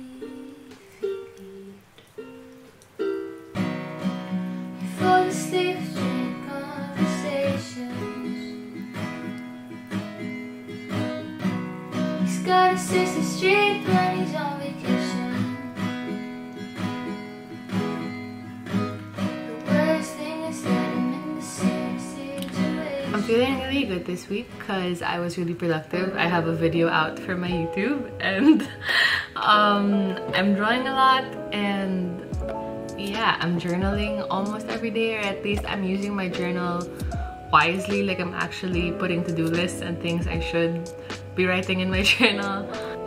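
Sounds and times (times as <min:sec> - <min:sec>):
woman singing: 0:00.0 - 0:01.9, 0:04.8 - 0:08.9, 0:12.2 - 0:15.8, 0:19.4 - 0:28.7, 0:29.3 - 0:43.0
plucked ukulele notes: 0:00.0 - 0:10.3, 0:18.8 - 0:23.6, 0:29.5 - 0:43.0
strummed acoustic guitar: 0:00.0 - 0:28.8, 0:29.4 - 0:43.0.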